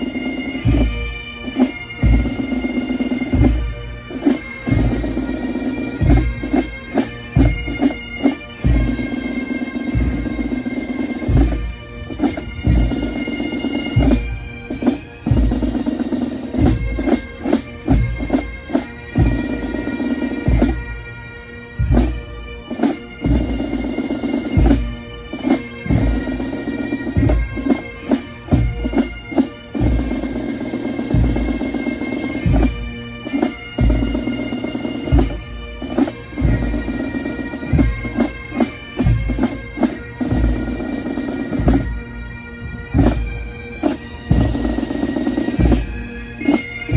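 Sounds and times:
bagpipes playing tune: 0.0 - 46.9
drum strikes: 31.1 - 32.8, 33.8 - 36.6.

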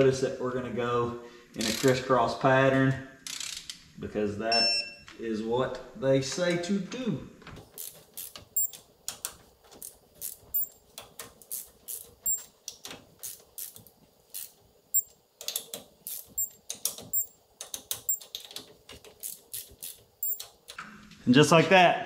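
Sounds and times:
torque wrench ratcheting: 1.6 - 2.0, 3.2 - 3.8, 7.6 - 20.8.

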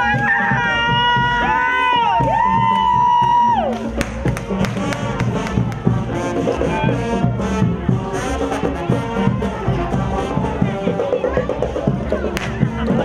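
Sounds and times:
steady drum beat: 0.0 - 13.0
brass band music: 3.8 - 13.0.

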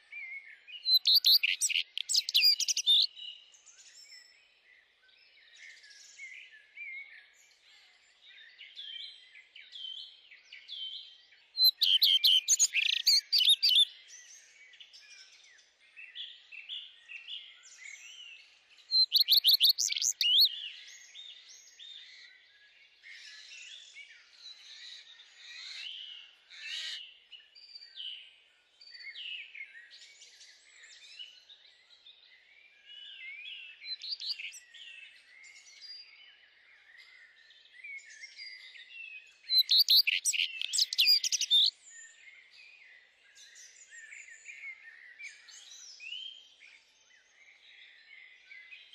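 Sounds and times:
loud trilled birdsong: 0.0 - 3.6, 11.4 - 14.2, 18.1 - 22.1, 24.2 - 28.0, 33.2 - 37.4, 38.0 - 46.6
songbirds chirping: 0.0 - 48.9.

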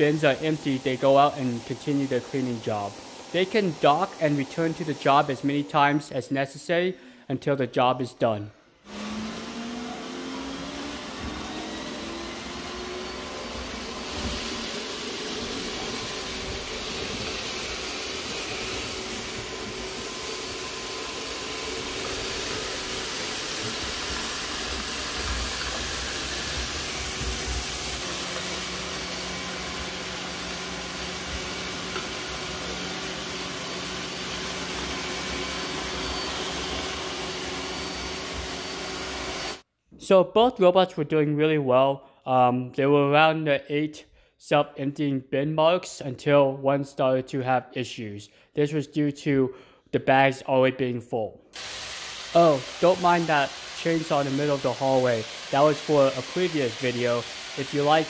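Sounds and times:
robot vacuum whirring: 8.9 - 39.6.

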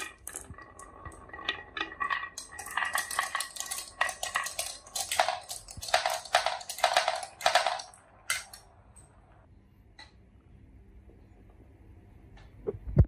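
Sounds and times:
marbles rattling down wooden run: 0.0 - 8.6.

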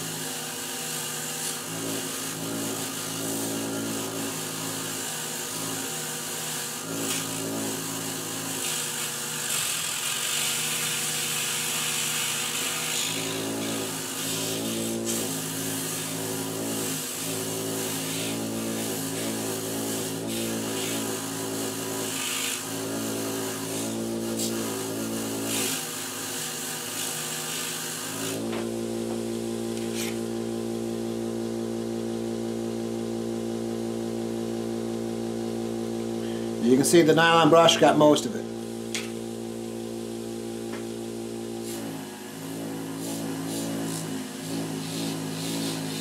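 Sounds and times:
wire brush hissing on bolt: 0.0 - 28.8, 29.7 - 30.3, 41.5 - 42.2, 42.9 - 46.0
bench grinder motor humming: 0.0 - 46.0.

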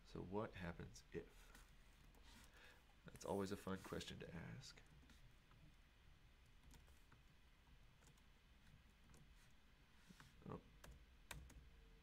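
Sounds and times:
keyboard keys clicking: 10.8 - 11.7.

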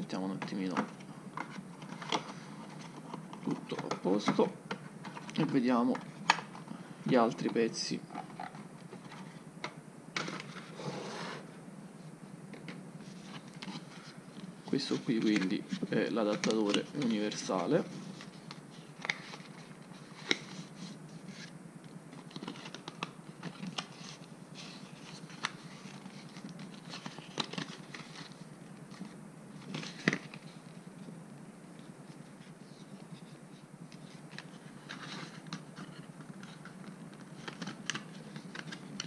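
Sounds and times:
paper rustling: 22.2 - 30.6.

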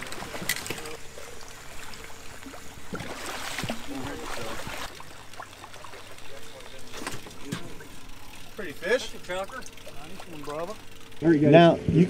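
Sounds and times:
rain pattering on a lake: 0.0 - 11.1
water splashing: 0.0 - 11.1.

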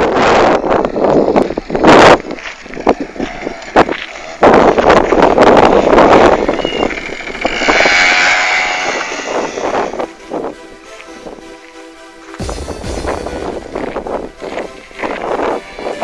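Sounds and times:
tires on loose gravel: 0.0 - 16.0
scooter engine revving: 2.8 - 10.1.

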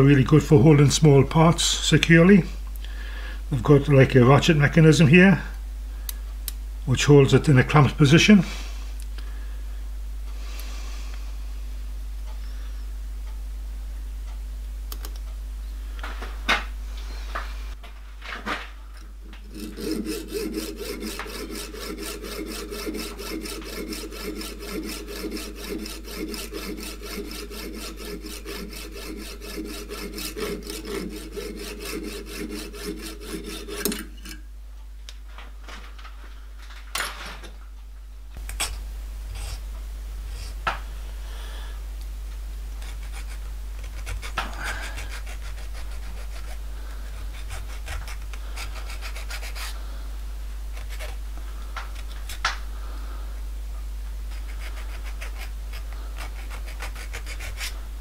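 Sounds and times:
hacksaw cutting brass rod: 19.4 - 34.4, 54.4 - 57.8.

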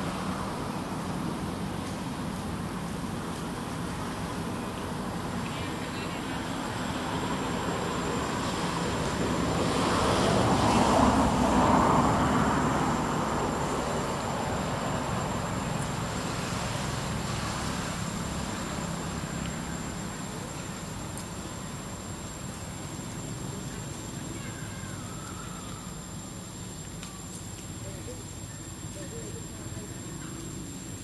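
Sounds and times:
motor vehicle passing by: 5.6 - 21.9.

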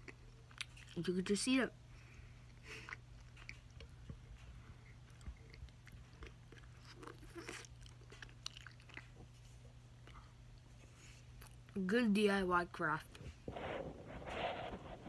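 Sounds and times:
person chewing candy: 0.0 - 1.2, 1.9 - 10.7
steady low hum: 0.0 - 15.0.

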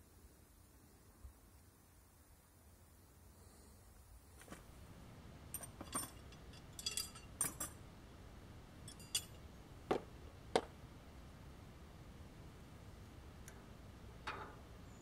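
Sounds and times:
metal parts clicking: 5.5 - 7.8, 8.9 - 9.3.

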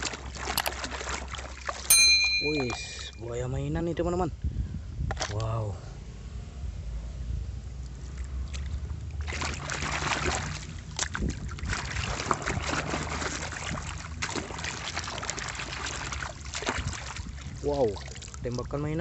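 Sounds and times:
water splashing and sloshing: 0.0 - 3.2, 7.6 - 19.0.

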